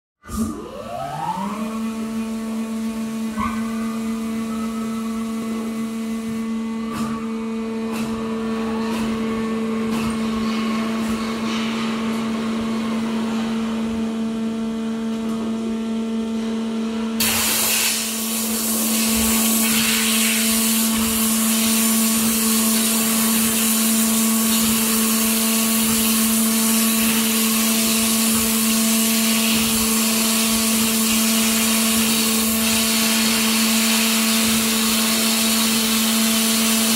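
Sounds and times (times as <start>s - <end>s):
high-pressure pump humming: 0.2s - 15.5s, 17.2s - 36.9s.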